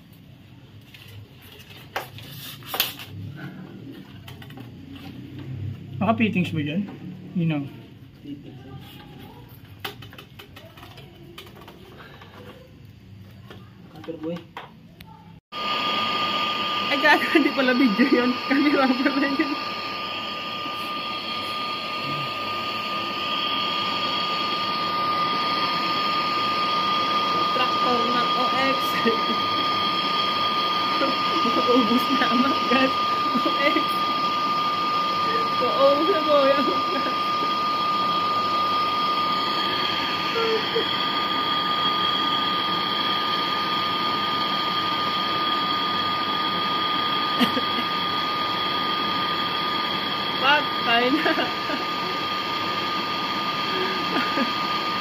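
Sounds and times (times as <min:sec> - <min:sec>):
gas torch hissing: 0:15.5 - 0:55.0.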